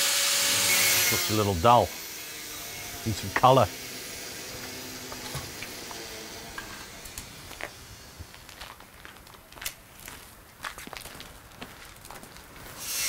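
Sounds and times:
footsteps on gravel: 0:06.6 - 0:12.8.

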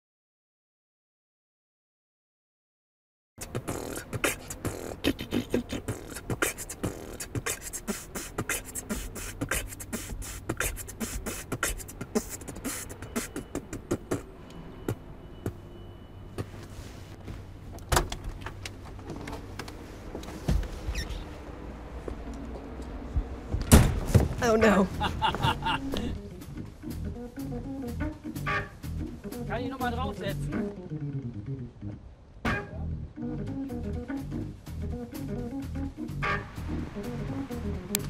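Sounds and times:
woman beatboxing: 0:03.4 - 0:14.3
low thud: 0:23.5 - 0:24.4.

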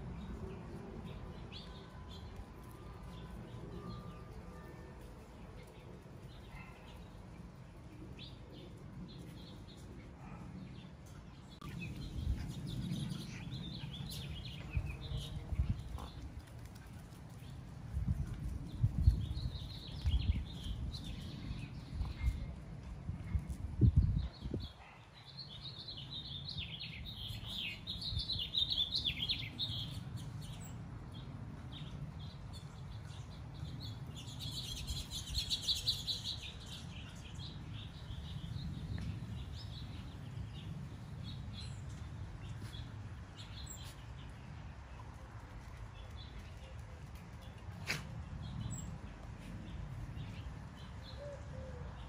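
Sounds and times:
small birds twittering: 0:05.1 - 0:22.5, 0:24.0 - 0:45.2.

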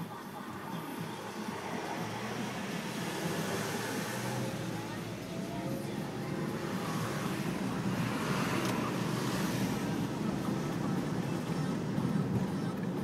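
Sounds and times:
car engine and tyre noise: 0:00.0 - 0:13.0.

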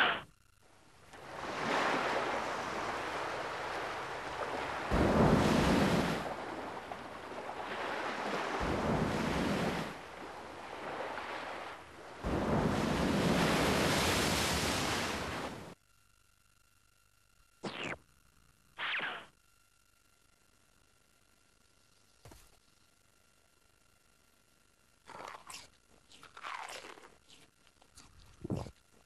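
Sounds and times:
ocean waves breaking: 0:01.2 - 0:15.8.

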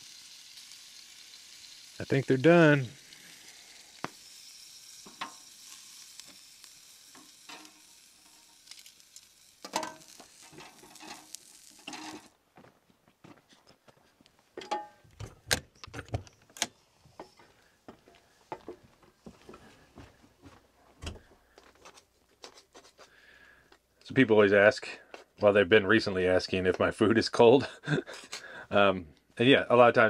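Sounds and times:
chicken sizzling: 0:00.0 - 0:12.4
utensil tapping cookware: 0:14.6 - 0:15.0.

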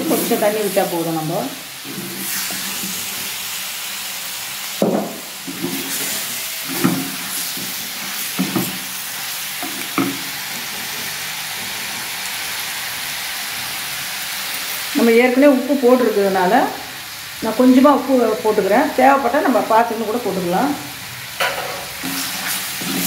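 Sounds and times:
chicken sizzling in a clay pot: 0:00.0 - 0:23.0
wooden spatula scraping a pot: 0:01.8 - 0:03.3, 0:05.5 - 0:08.8, 0:22.0 - 0:23.0.

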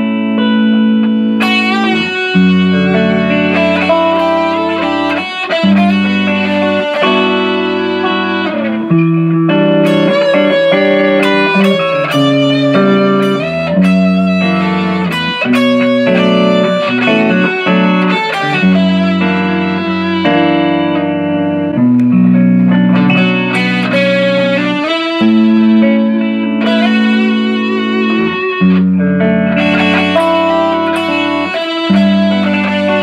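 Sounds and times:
electric guitar chords: 0:00.0 - 0:33.0.

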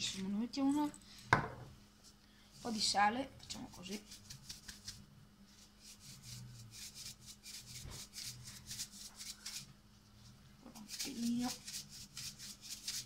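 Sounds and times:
salt grinder rasping: 0:10.8 - 0:13.0.

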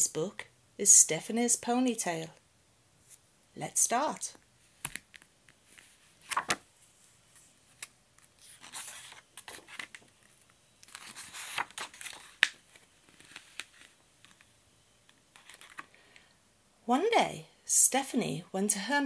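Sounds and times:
book pages rustling: 0:04.6 - 0:16.0.

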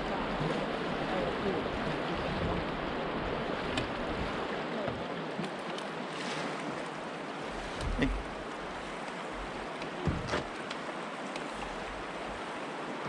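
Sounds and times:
river current rushing: 0:00.0 - 0:13.0
faint clicks: 0:09.0 - 0:11.7.

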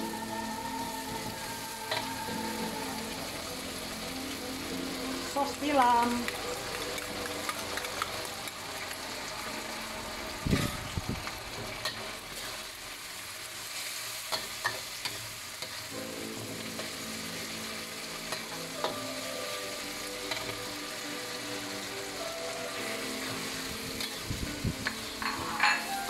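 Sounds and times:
onions sizzling in wok: 0:00.0 - 0:26.0
metal spatula scraping wok: 0:22.8 - 0:26.0.

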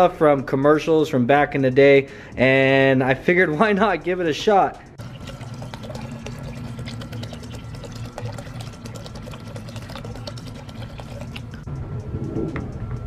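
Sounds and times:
liquid pouring into bucket of water: 0:05.0 - 0:11.6
water splashing and bubbling: 0:05.0 - 0:11.7.

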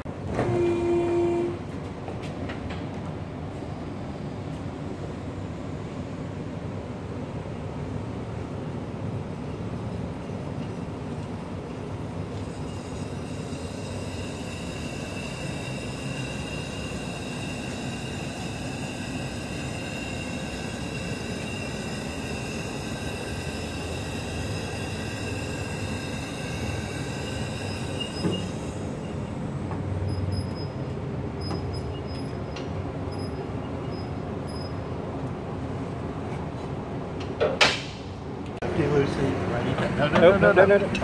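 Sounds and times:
hydraulic lift hissing and whining: 0:12.3 - 0:29.7.

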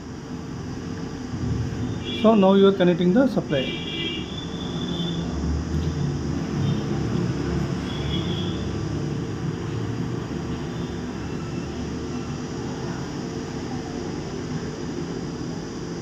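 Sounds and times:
low engine-like rumble: 0:01.1 - 0:03.1.

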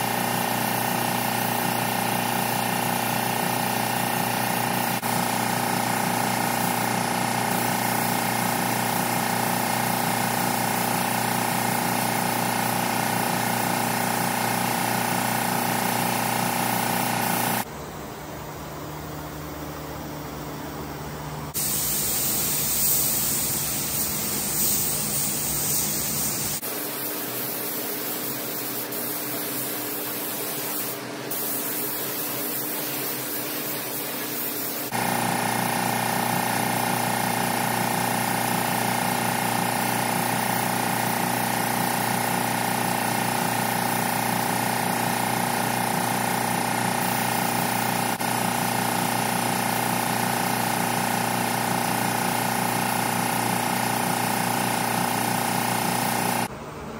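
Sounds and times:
paint spray gun hissing: 0:00.0 - 0:17.7, 0:21.6 - 0:56.5.

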